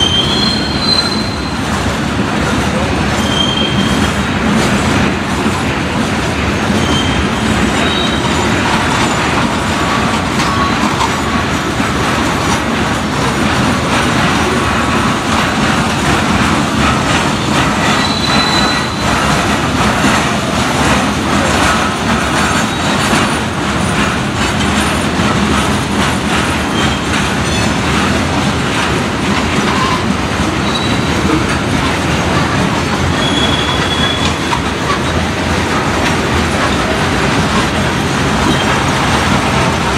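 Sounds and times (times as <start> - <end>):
high wheel squeals: 0.0 - 1.8, 3.1 - 4.2, 6.6 - 11.4, 17.6 - 19.5, 26.7 - 27.8, 29.6 - 31.4, 32.3 - 35.2, 38.4 - 38.9
clickety-clack over rail joints: 0.0 - 39.9
train wheels rumbling on rail: 0.0 - 39.9.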